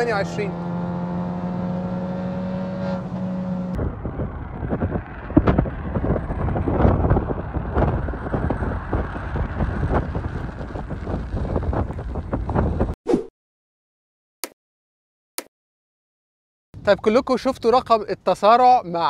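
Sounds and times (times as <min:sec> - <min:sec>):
car approaching: 0:00.0 - 0:13.0
car engine at speed in cabin: 0:00.0 - 0:13.0
wind buffeting microphone: 0:00.0 - 0:13.0.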